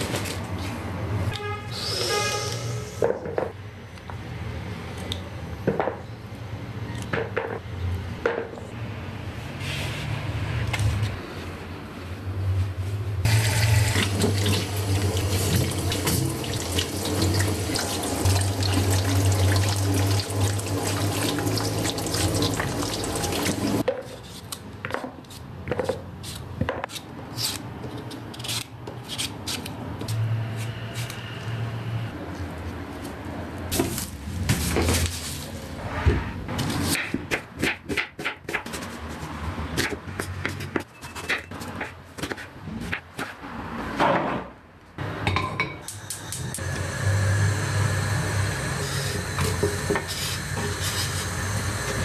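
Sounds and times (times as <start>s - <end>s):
tap water running into bowl: 13.3s - 23.8s.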